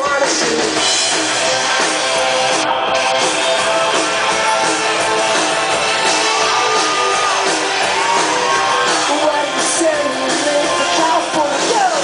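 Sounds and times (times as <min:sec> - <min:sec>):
live rock band playing: 0:00.0 - 0:12.0.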